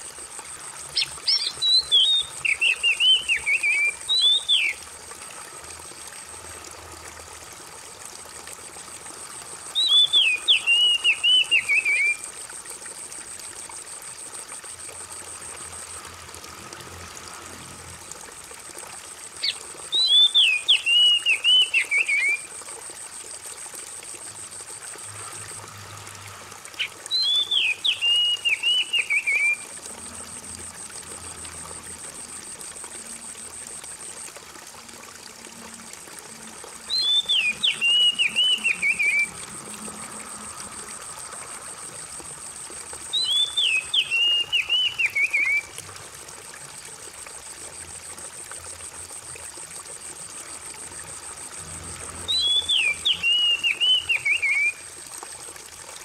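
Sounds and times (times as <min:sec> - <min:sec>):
water trickling: 0:00.0 - 0:56.0
bird singing whistled phrases: 0:01.0 - 0:04.8, 0:09.8 - 0:12.2, 0:19.4 - 0:22.5, 0:27.1 - 0:29.6, 0:36.9 - 0:39.3, 0:43.1 - 0:45.7, 0:52.3 - 0:54.8.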